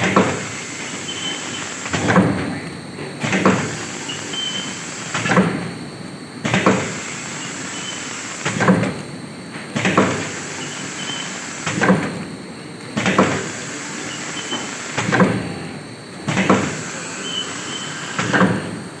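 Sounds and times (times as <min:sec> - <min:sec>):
continuous machine noise: 0:00.0 - 0:19.0
packing machine clattering strokes: 0:00.0 - 0:19.0.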